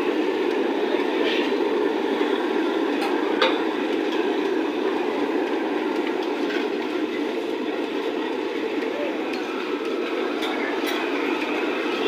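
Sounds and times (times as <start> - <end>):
frying in hot oil sizzling: 0.0 - 12.0.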